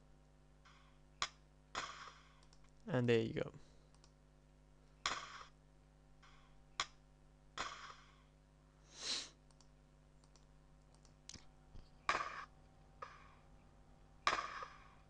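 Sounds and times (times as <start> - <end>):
faint clicks: 2.4 - 2.8, 3.9 - 4.2, 9.4 - 11.9.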